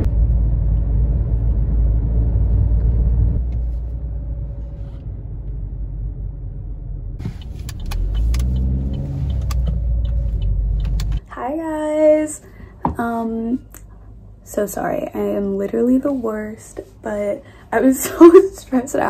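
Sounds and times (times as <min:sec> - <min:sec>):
car cabin road rumble: 0:00.0 - 0:12.3
sharp clicks and knocks: 0:07.3 - 0:11.2.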